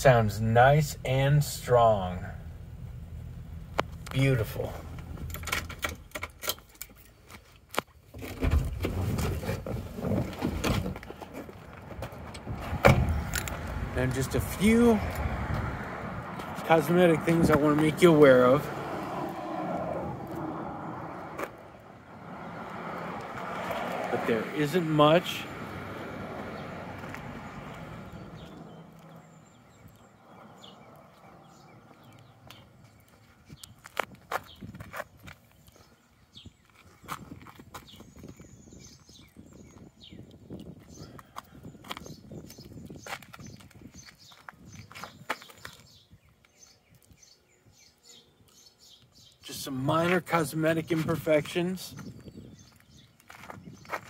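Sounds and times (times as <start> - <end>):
low engine hum: 0.3 - 6.2, 11.0 - 33.7
footsteps on pavement: 14.5 - 24.3, 25.6 - 47.4, 51.9 - 54.0.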